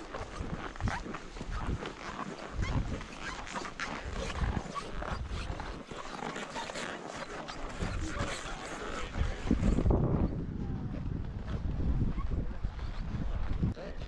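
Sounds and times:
ski boots crunching in snow: 0.0 - 9.6.

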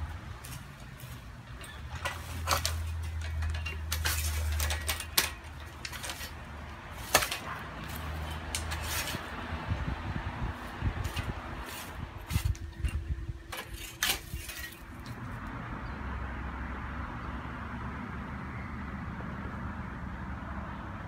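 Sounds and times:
leaves rustling: 0.0 - 15.4.

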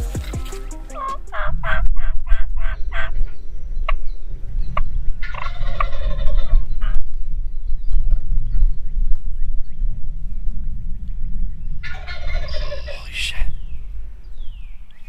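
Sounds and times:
turkey gobbling: 0.4 - 3.2, 5.2 - 7.0, 11.8 - 13.1
wind rumble on microphone: 1.3 - 15.0.

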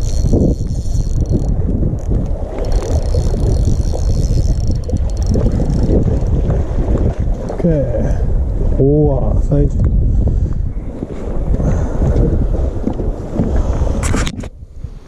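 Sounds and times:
fishing reel whirring and ticking: 0.0 - 6.5
wind rumble on microphone: 0.0 - 15.0.

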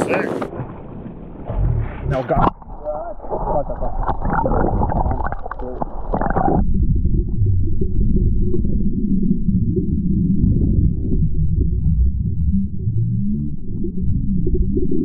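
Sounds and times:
water splashing: 0.0 - 6.7
muffled underwater rumble: 0.0 - 15.0.

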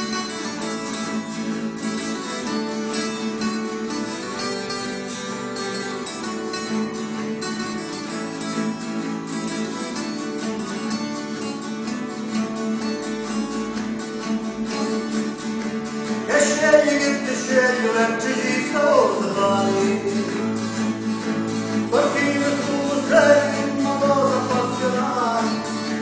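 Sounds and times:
acoustic guitars strumming: 0.0 - 26.0
man singing: 16.3 - 20.9, 21.7 - 26.0.

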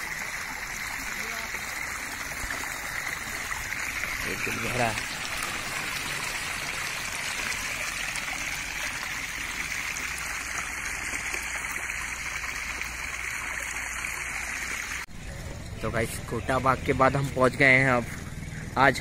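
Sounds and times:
water rushing along a channel: 0.0 - 19.0.

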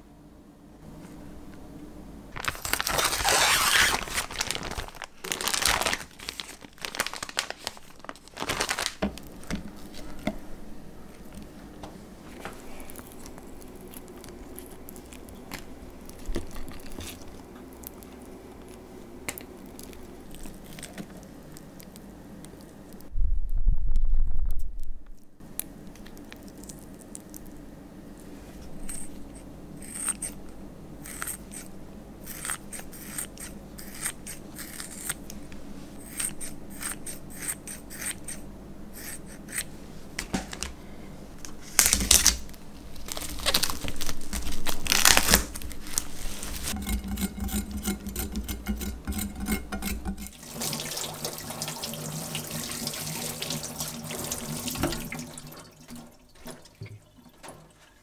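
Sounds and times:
knife cutting plastic wrap: 2.4 - 9.2, 41.6 - 50.3
tap water running into sink: 48.6 - 57.9.

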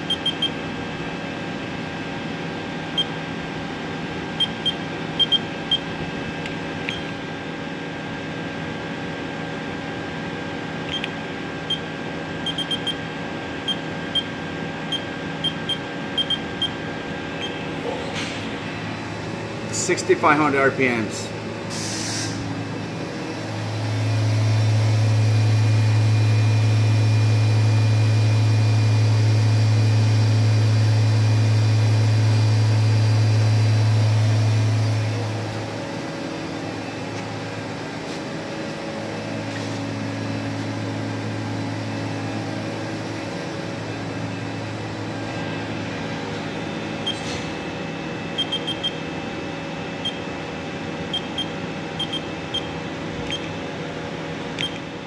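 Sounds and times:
machine spindle humming: 0.0 - 55.0
quieter machine hum: 0.0 - 55.0
short beeps: 0.1 - 0.5, 4.4 - 5.8, 12.5 - 13.0, 48.4 - 49.0, 51.1 - 52.7.

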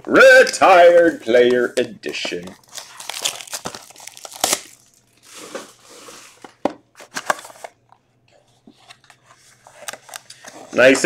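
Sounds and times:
plastic shrink-wrap crackling: 2.6 - 5.6.

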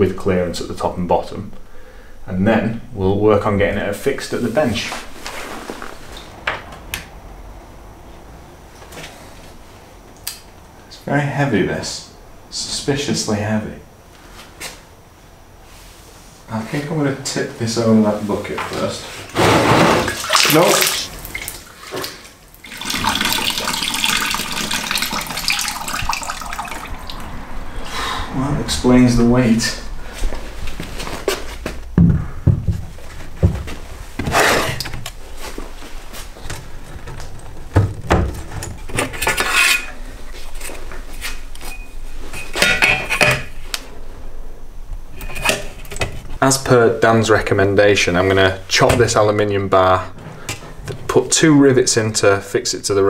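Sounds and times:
liquid pouring into plastic bucket: 20.0 - 27.3
heavy thumps: 30.1 - 38.8.

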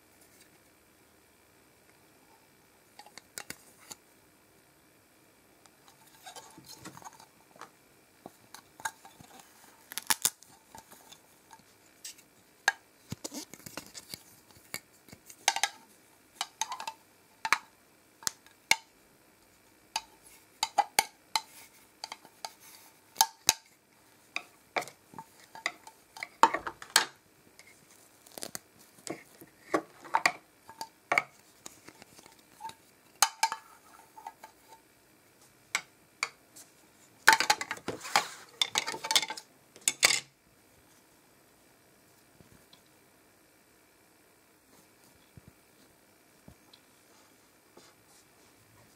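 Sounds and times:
plastic toys clattering: 37.3 - 40.3.

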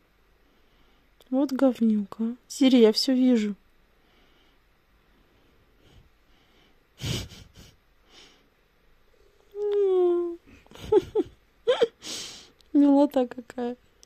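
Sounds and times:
soft breaths: 0.2 - 1.2, 3.8 - 12.6.

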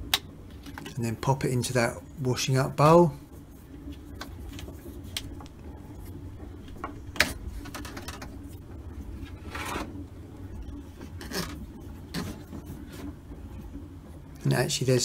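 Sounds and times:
plastic hose rubbing and scraping: 3.9 - 10.0, 10.9 - 13.2.

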